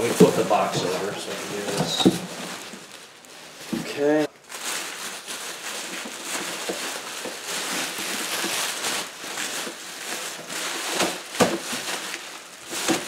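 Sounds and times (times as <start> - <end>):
bubble wrap crinkling: 0.0 - 13.0.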